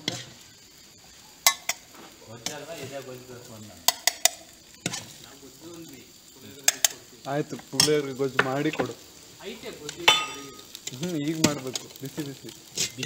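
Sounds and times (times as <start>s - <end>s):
rice stirred in steel pan: 0.0s - 13.0s
steel utensils clinking: 1.4s - 1.8s, 3.8s - 5.3s, 6.6s - 9.0s, 9.8s - 13.0s.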